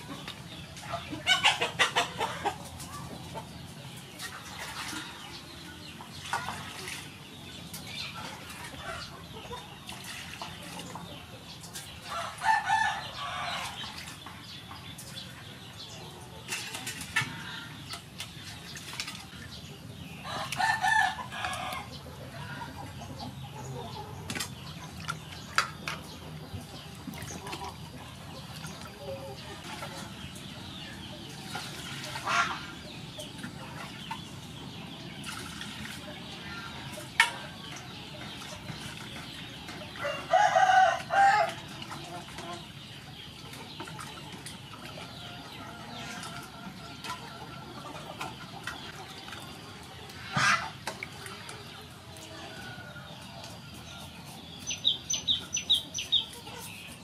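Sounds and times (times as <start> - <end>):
water splashing in a metal basin: 0.0 - 22.0, 24.2 - 53.7
chickens clucking: 0.0 - 57.0
water splashing in metal bowl: 4.2 - 8.8, 35.2 - 40.0.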